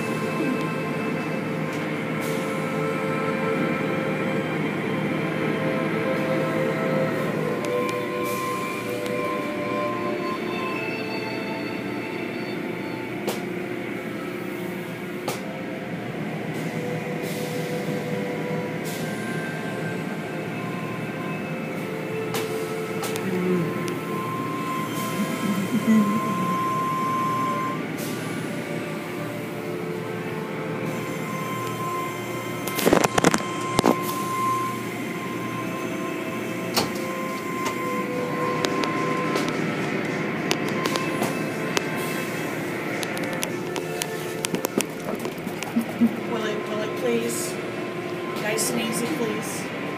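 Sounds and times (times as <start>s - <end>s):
car wash machinery hum: 0.0s - 49.9s
high whine: 17.8s - 49.9s.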